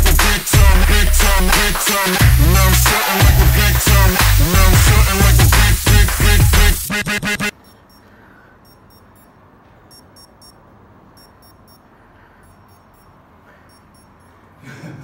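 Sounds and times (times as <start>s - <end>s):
electronic alarm beeping: 7.5s - 10.6s, 11.2s - 14.4s.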